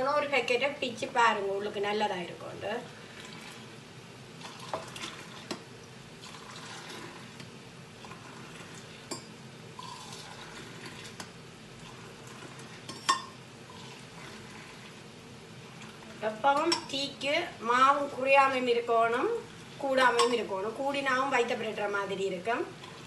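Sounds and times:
liquid pouring between cups: 0:03.0 - 0:03.8, 0:04.4 - 0:16.2, 0:22.8 - 0:23.0
metal cups clinking: 0:20.1 - 0:20.4.

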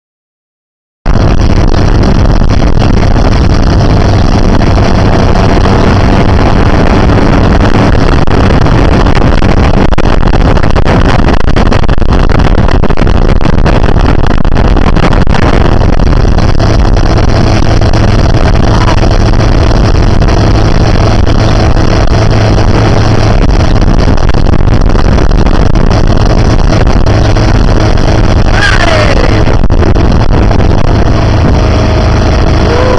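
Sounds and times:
motorboat engine running: 0:01.1 - 0:32.9
rush of wind and water: 0:01.1 - 0:32.9
falling tone: 0:31.1 - 0:32.9.

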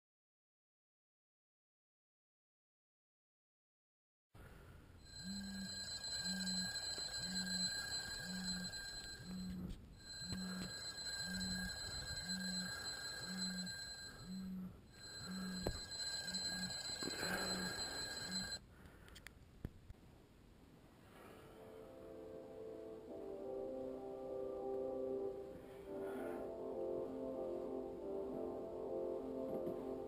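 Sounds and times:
smartphone alarm tone: 0:05.1 - 0:18.6.

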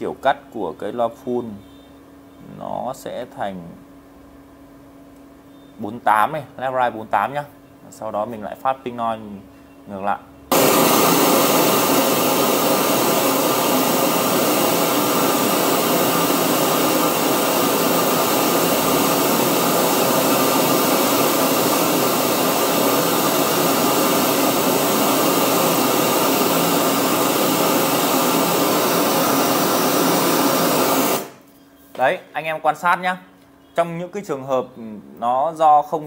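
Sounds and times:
pink noise hiss: 0:10.5 - 0:31.4.

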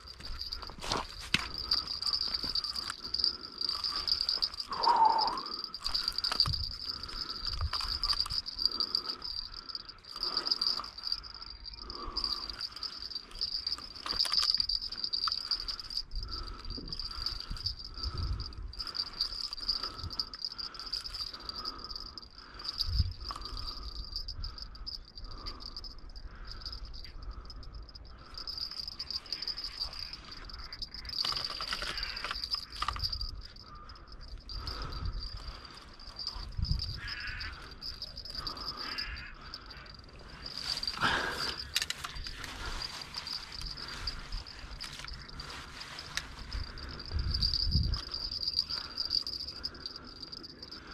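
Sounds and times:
insects trilling: 0:00.0 - 0:50.9
low pulsing chirp: 0:00.0 - 0:50.9.

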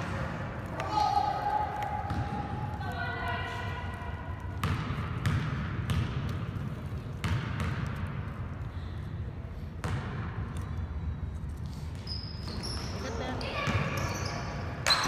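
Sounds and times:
basketball bouncing on gym floor: 0:01.7 - 0:03.6, 0:04.4 - 0:08.5, 0:09.8 - 0:10.6.

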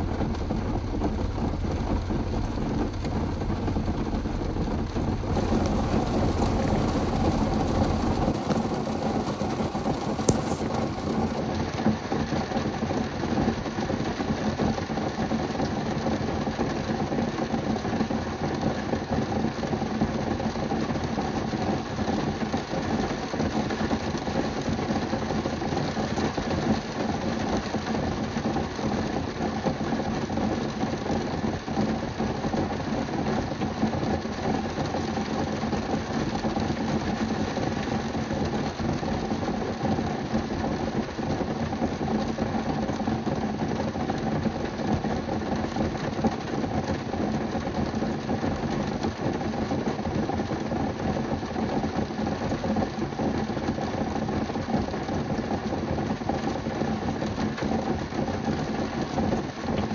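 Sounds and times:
low steady hum: 0:00.0 - 0:12.1
heavy rain on car roof: 0:00.0 - 0:59.9.

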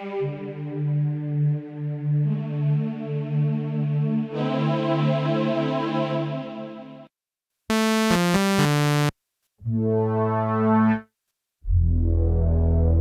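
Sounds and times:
synthesizer chords and phrases: 0:07.7 - 0:09.1.

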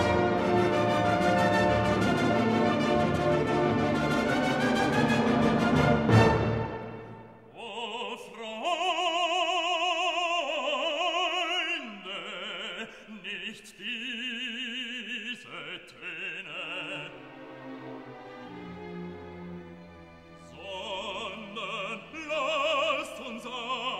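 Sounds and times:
orchestral chord: 0:00.0 - 0:07.4
operatic solo voice singing: 0:07.5 - 0:17.4, 0:20.4 - 0:23.9.

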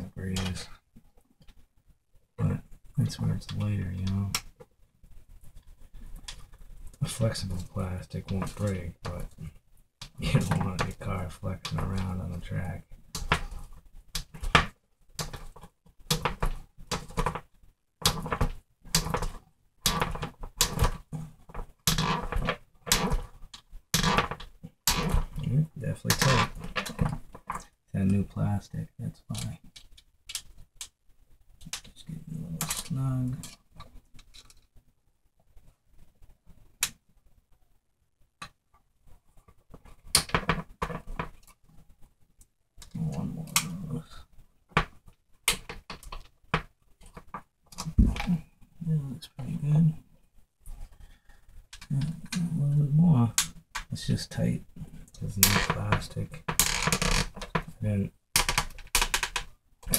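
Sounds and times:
plastic parts clicking and rattling: 0:13.1 - 0:25.5, 0:26.1 - 0:27.8, 0:29.3 - 0:31.0, 0:31.6 - 0:34.7, 0:58.4 - 0:59.9.

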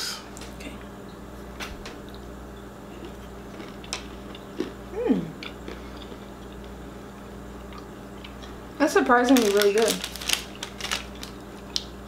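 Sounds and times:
steady low hum: 0:00.0 - 0:12.0
crunchy chewing: 0:02.9 - 0:06.8, 0:09.4 - 0:12.0
person humming mm: 0:04.9 - 0:05.4.

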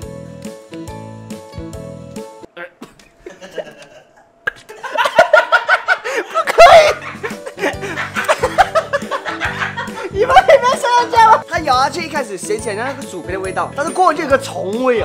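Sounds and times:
background music: 0:00.0 - 0:15.0
group laughing loudly: 0:03.3 - 0:11.4
excited voices: 0:06.4 - 0:07.1, 0:10.0 - 0:11.4.

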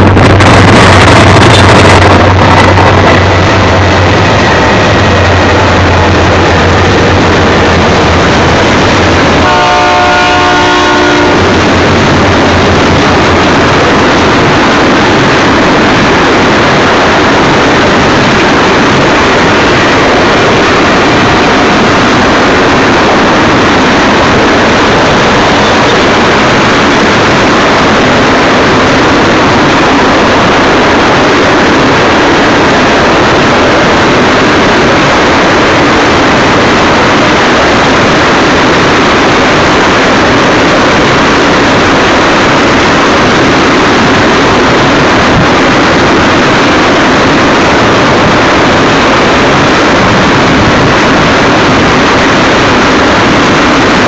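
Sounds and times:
locomotive engine drone: 0:00.0 - 0:54.0
train wheels rumbling on rail: 0:00.0 - 0:54.0
train horn: 0:09.3 - 0:11.8.

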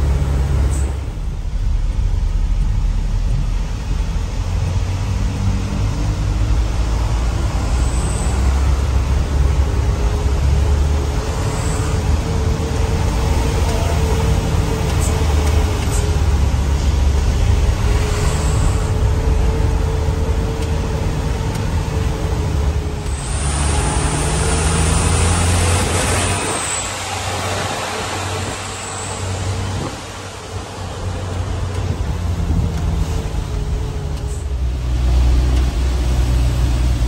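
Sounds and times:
truck diesel engine droning: 0:00.0 - 0:37.0
steady whine: 0:09.2 - 0:35.8.

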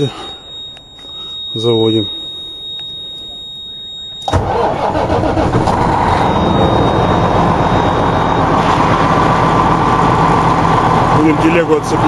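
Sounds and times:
truck engine starting and idling: 0:04.2 - 0:12.0.

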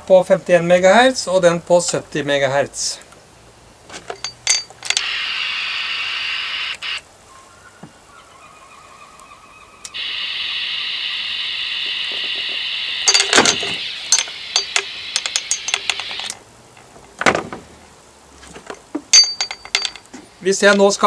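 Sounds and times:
radio receiver hiss: 0:04.8 - 0:07.1, 0:09.9 - 0:16.4.

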